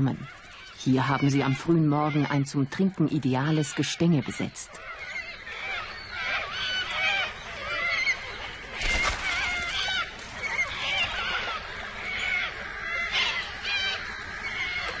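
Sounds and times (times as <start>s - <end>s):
cockatoos screeching: 4.8s - 15.0s
water splashing: 8.7s - 11.6s.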